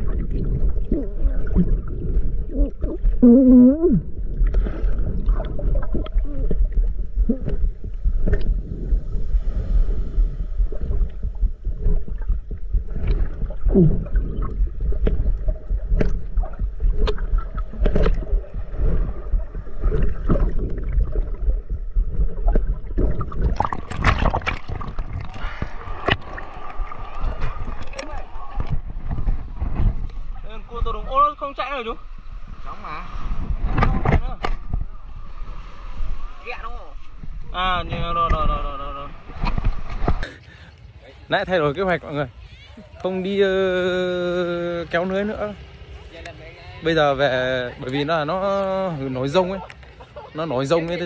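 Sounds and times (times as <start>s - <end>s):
muffled underwater rumble: 0.0s - 31.2s, 32.0s - 40.6s
water splashing: 0.0s - 51.0s
small clicks and bubbling: 11.8s - 30.2s.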